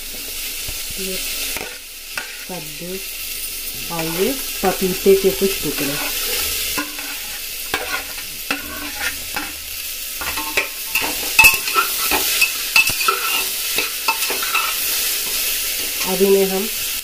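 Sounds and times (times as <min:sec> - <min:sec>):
vegetables sizzling: 0:00.0 - 0:17.0
spatula scraping metal pot: 0:05.6 - 0:16.2.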